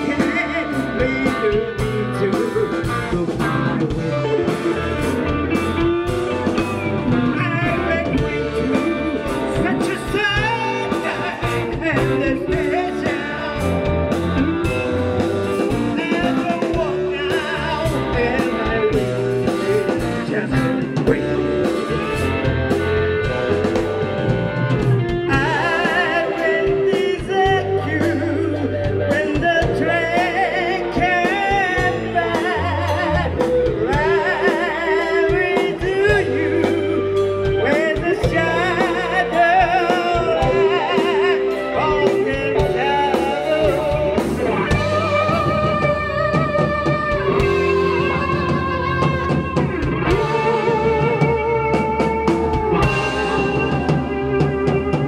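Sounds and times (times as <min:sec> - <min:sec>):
man singing into a microphone: 0:00.0 - 0:23.4, 0:25.2 - 0:55.0
bass guitar: 0:00.0 - 0:55.0
drum kit: 0:00.0 - 0:55.0
electric guitars: 0:00.0 - 0:55.0.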